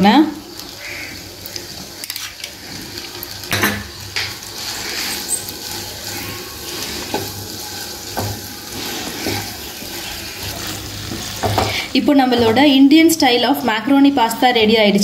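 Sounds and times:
pasta sizzling in a pan: 0:00.0 - 0:15.0
spatula knocking and scraping pan: 0:08.1 - 0:12.8.

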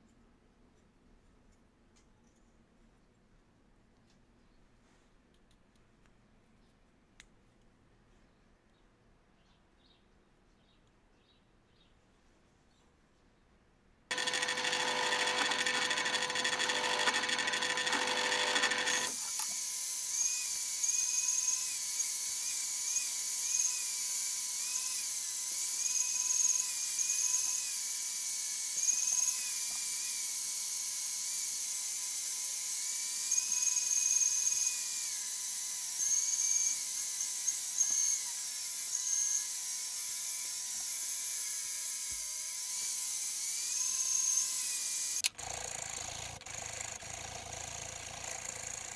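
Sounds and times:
band saw whining: 0:14.1 - 0:30.4
drill press drilling wood: 0:14.1 - 0:48.9.

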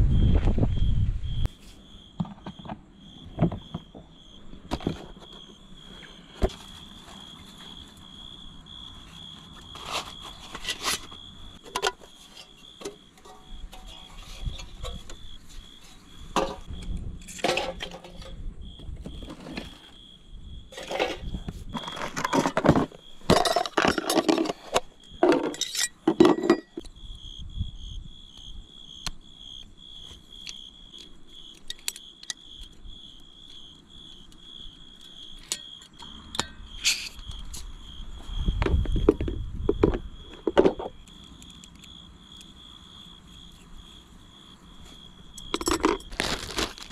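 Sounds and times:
night insects chirping: 0:00.0 - 0:46.9
metal camp-stove parts clinking: 0:09.9 - 0:15.5, 0:16.2 - 0:18.4, 0:20.7 - 0:26.9, 0:30.4 - 0:32.8, 0:35.0 - 0:37.7, 0:45.4 - 0:46.9.

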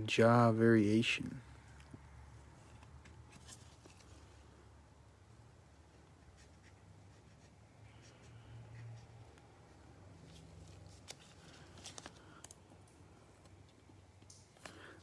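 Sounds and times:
gloved hands handling cards: 0:01.8 - 0:04.6, 0:05.9 - 0:15.0.

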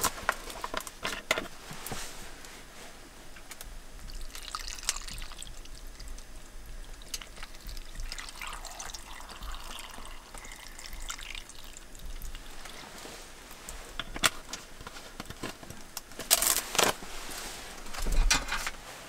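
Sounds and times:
water pouring over vegetables: 0:04.1 - 0:13.1.

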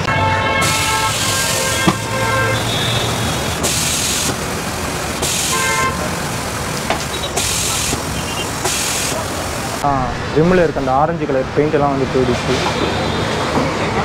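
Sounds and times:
vehicle horns tooting: 0:00.0 - 0:03.6, 0:05.3 - 0:06.2, 0:07.0 - 0:08.6, 0:12.7 - 0:13.5
road traffic noise: 0:00.0 - 0:14.0
short bursts of hiss: 0:05.2 - 0:05.9, 0:07.0 - 0:09.8.

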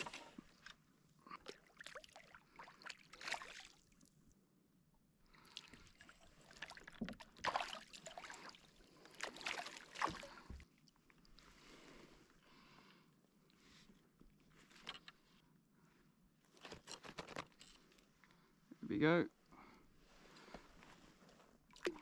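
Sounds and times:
fish splashing in water: 0:06.5 - 0:10.4.

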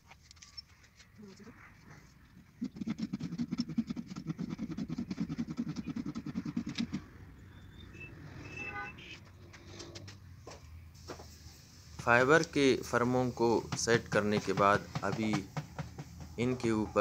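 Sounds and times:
small engine puttering: 0:02.6 - 0:07.1.

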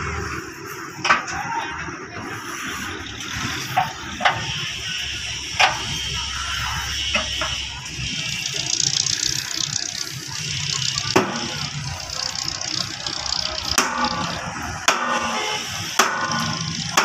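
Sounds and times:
steady mechanical noise: 0:00.0 - 0:17.0
sharp metal knocks: 0:13.7 - 0:15.4, 0:16.0 - 0:17.0.

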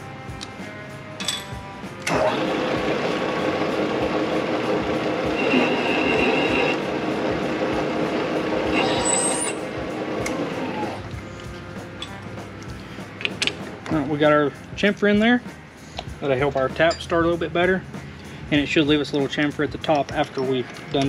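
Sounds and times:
milling machine cutting metal: 0:02.0 - 0:11.0
high whine from cutting: 0:02.0 - 0:12.9.

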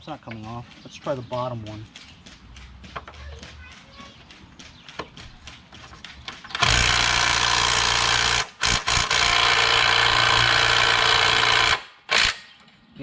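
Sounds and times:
impact wrench hammering on bolt: 0:06.6 - 0:12.4.

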